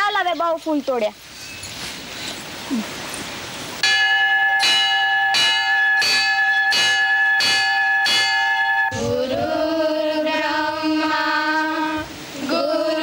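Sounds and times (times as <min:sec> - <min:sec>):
hand bell ringing: 0:03.8 - 0:09.0.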